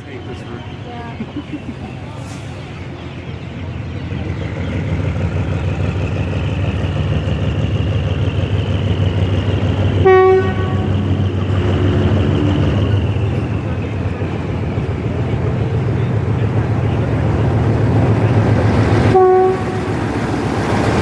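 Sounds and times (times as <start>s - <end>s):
diesel locomotive engine rumble: 0.0s - 21.0s
locomotive horn blast: 10.0s - 12.1s, 19.0s - 20.0s.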